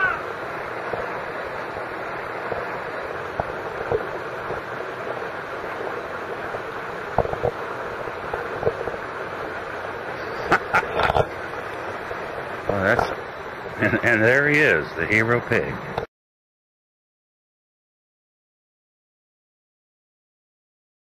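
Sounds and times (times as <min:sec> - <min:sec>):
rushing water: 0:00.0 - 0:16.1.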